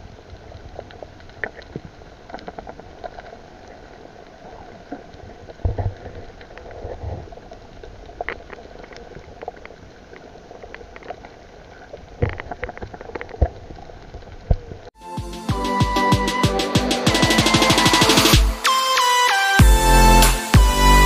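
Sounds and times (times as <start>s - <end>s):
sharp clicks and crackles: 0.0s - 14.9s.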